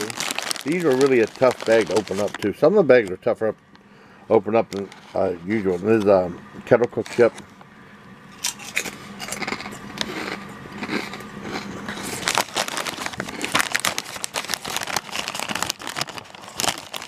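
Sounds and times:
potato chip crunching: 0.0 - 3.1, 8.4 - 17.0
plastic bag crinkling: 0.0 - 3.2, 6.7 - 7.4, 11.9 - 17.0.

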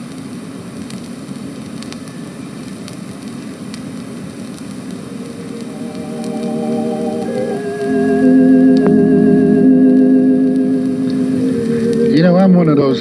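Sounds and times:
record surface hiss and crackle: 0.0 - 13.0
soft organ music: 5.3 - 13.0.

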